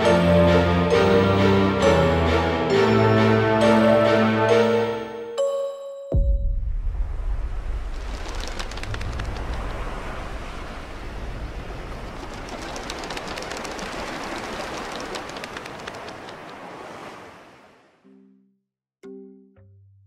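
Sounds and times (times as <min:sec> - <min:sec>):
sea surf washing on beach: 0:07.0 - 0:18.0
sharp little ticks: 0:12.2 - 0:16.6.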